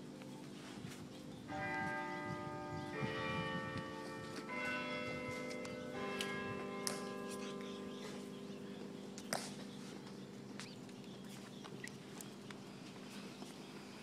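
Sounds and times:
bells chiming: 1.3s - 9.2s.

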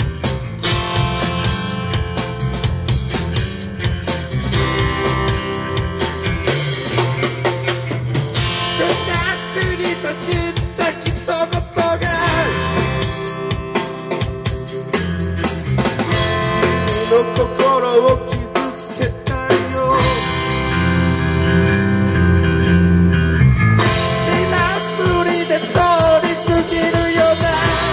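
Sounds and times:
bass guitar: 0.0s - 27.9s
drum kit: 0.0s - 27.9s
electric guitars: 0.0s - 27.9s
man singing: 8.7s - 13.4s, 16.4s - 20.6s, 24.0s - 27.9s.

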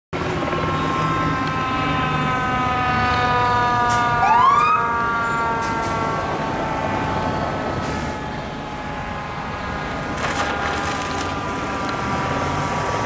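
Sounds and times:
truck engine rumbling: 0.1s - 13.0s
fire engine siren: 0.2s - 13.0s
second siren rising: 0.5s - 10.0s.

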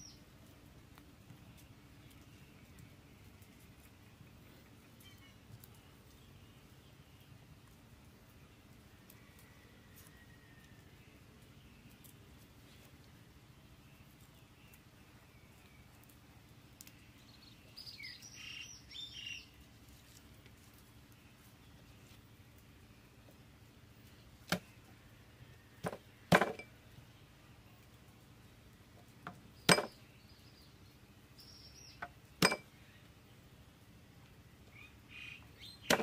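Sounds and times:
bird chirping: 0.0s - 0.3s, 1.4s - 8.8s, 10.2s - 20.2s, 29.4s - 36.0s
faint outdoor background: 0.0s - 36.0s.

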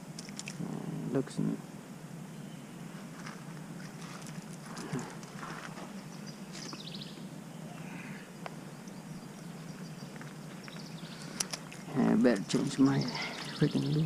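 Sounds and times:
low background ambience: 0.0s - 14.0s
bird calls: 3.8s - 14.0s.

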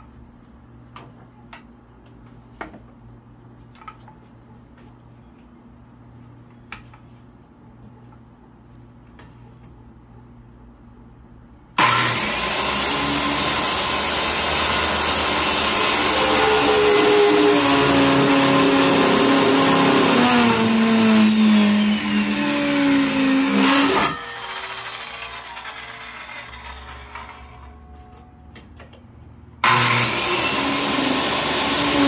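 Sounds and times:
circular saw cutting wood: 11.8s - 27.7s, 29.6s - 32.0s.

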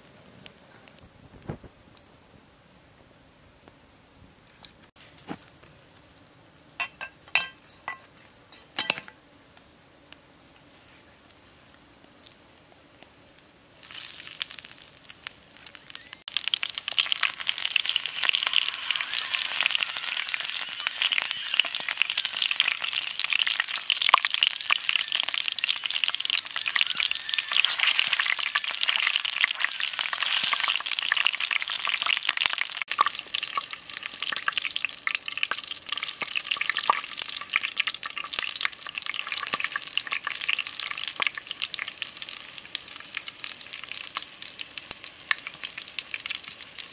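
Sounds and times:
centipedes sizzling in hot oil: 13.8s - 46.9s.

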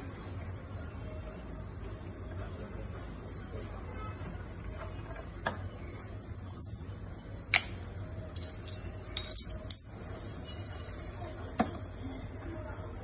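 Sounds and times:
metal tools clinking: 8.4s - 10.1s.

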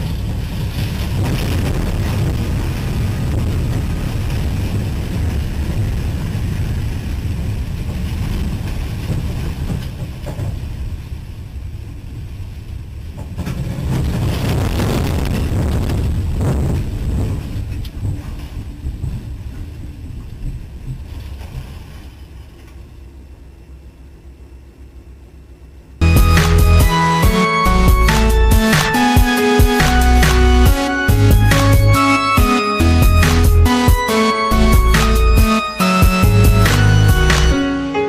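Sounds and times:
wind buffeting microphone: 0.0s - 22.0s
moving train rumble: 0.0s - 38.0s.

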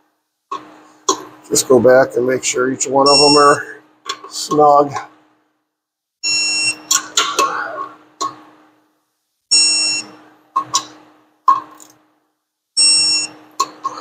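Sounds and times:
digital torque wrench beeping: 3.1s - 3.6s, 6.2s - 6.9s, 9.5s - 10.1s, 12.8s - 13.4s.

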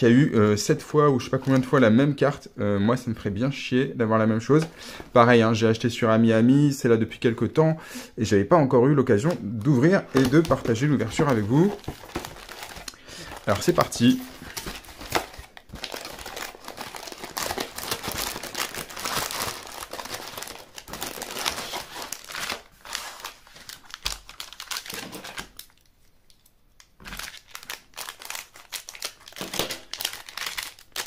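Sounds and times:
plastic candy packets crinkling: 1.2s - 2.0s, 9.2s - 25.9s, 27.0s - 31.0s.

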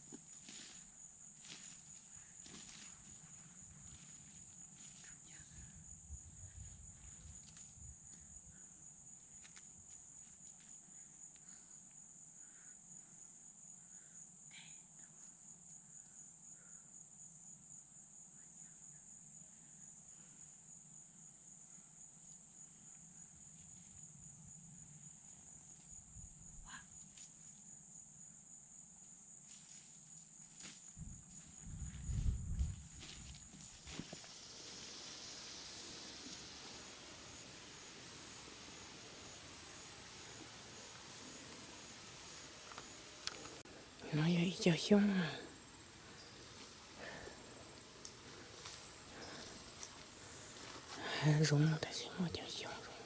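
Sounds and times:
high-pitched insect drone: 1.4s - 5.7s, 30.5s - 53.0s.

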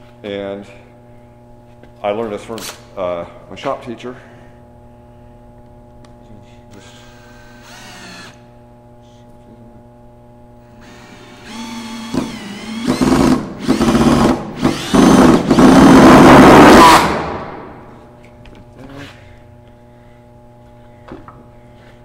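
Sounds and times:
cordless drill boring into wood: 6.8s - 8.4s, 10.8s - 17.0s.

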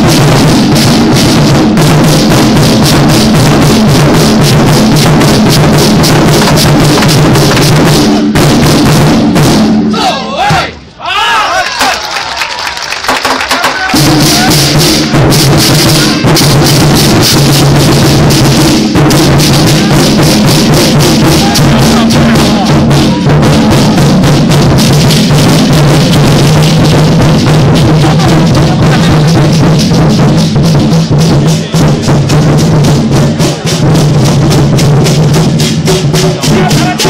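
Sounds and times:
drums beaten fast: 0.0s - 37.0s
cymbals clashing: 13.9s - 37.0s.

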